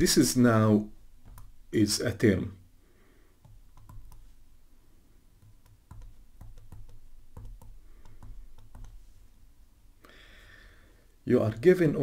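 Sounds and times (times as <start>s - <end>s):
stylus tapping tablet screen: 1.1s - 1.8s, 3.4s - 4.5s, 5.4s - 9.2s.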